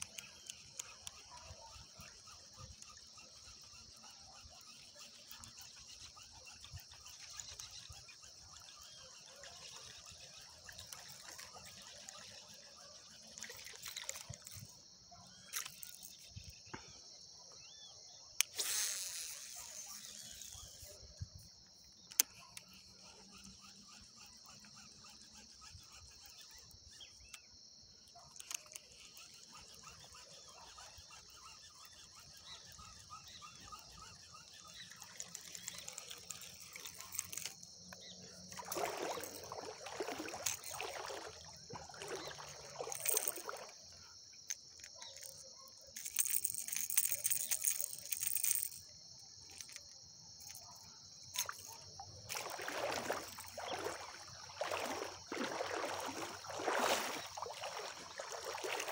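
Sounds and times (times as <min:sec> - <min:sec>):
high-pitched insect chorus: 0:00.0 - 0:58.9
fishing lure handling noise: 0:13.4 - 0:14.7, 0:15.5 - 0:16.3, 0:28.3 - 0:29.3, 0:35.0 - 0:37.7, 0:40.2 - 0:40.9, 0:42.1 - 0:43.6, 0:44.4 - 0:50.6, 0:51.3 - 0:53.6.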